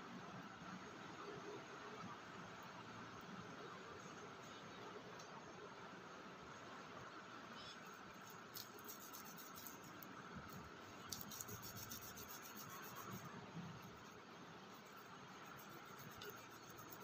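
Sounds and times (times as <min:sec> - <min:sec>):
low steady hiss: 0:00.0 - 0:17.0
hands scratching soil and clay: 0:07.9 - 0:17.0.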